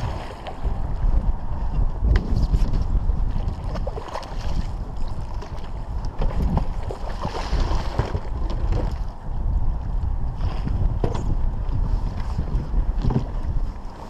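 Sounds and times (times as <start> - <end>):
wind buffeting microphone: 0.0 - 14.0
fish thrashing and splashing: 3.5 - 9.0.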